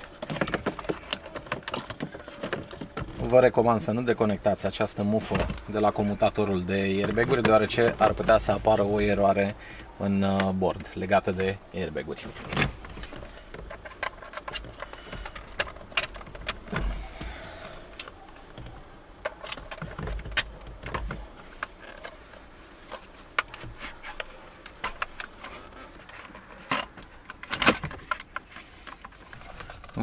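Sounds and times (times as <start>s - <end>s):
plastic clicks knocks and scrapes: 0.0s - 3.4s, 12.3s - 30.0s.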